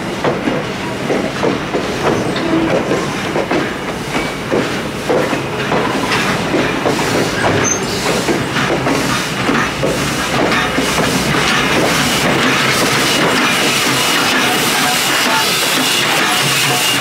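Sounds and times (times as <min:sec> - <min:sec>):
train wheels clacking over rail joints: 0:00.0 - 0:17.0
steady rumble of rolling cars: 0:04.5 - 0:17.0.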